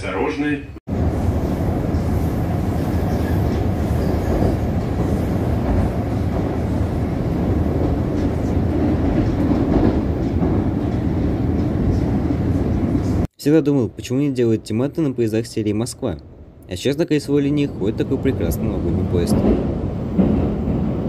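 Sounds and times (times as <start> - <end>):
train wheels rumbling on rails: 0.9 - 13.3, 17.2 - 21.0.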